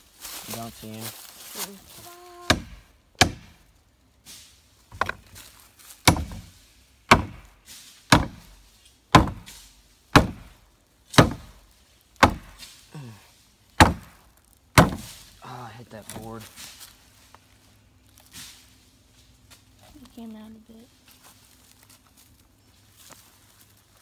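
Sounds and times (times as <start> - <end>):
hammer striking wood: 2.5 - 3.6, 4.9 - 5.2, 6.0 - 6.5, 7.1 - 7.5, 8.1 - 10.6, 11.2 - 11.6, 12.2 - 12.6, 13.8 - 14.2, 14.8 - 15.2.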